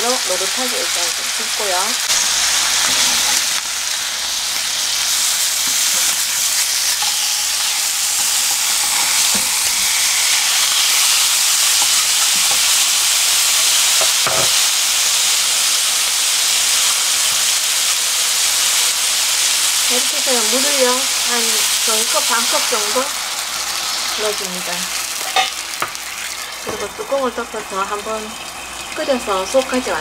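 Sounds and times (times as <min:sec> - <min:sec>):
meat sizzling in hot oil: 0:00.0 - 0:30.0.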